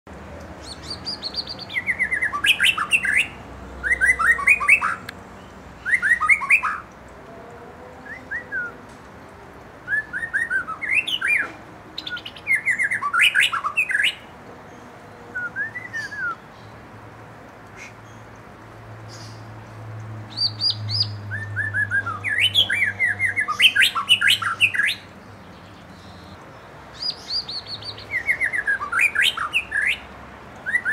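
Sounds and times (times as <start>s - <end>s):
bird singing whistles: 0.7s - 5.0s, 5.8s - 6.8s, 8.0s - 8.8s, 9.9s - 14.2s, 15.4s - 16.4s, 20.3s - 25.1s, 27.0s - 30.9s.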